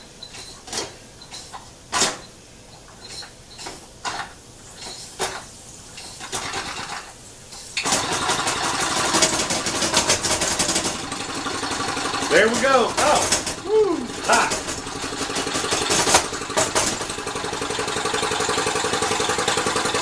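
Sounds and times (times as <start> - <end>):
flywheel clicks and knocks: 7.8 - 20.0
small steam engine running: 7.8 - 20.0.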